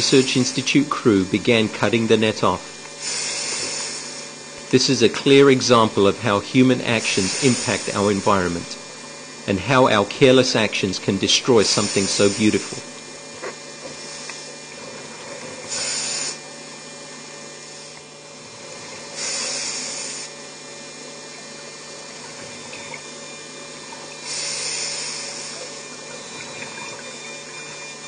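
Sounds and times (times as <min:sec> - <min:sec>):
underwater hum: 0:00.0 - 0:28.0
exhaled bubbles rushing: 0:25.6 - 0:27.8.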